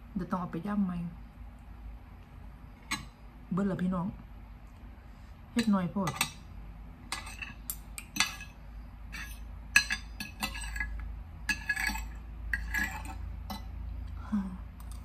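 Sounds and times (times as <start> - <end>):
spoon and fork clinking on a plate: 5.6 - 6.4, 7.1 - 13.7.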